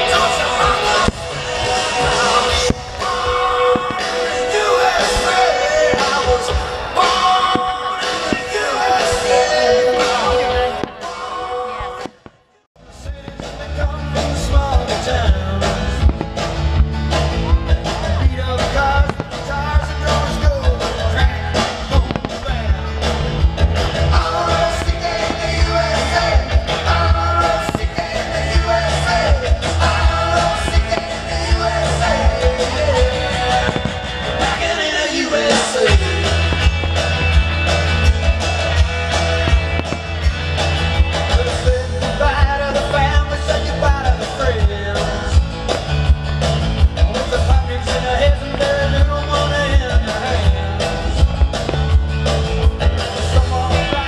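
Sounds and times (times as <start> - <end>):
steady drum beat and bass: 0.0 - 11.2, 12.8 - 54.0
person singing: 0.0 - 12.1, 24.0 - 37.3, 47.0 - 51.3, 53.0 - 54.0
rock and roll music: 0.0 - 54.0.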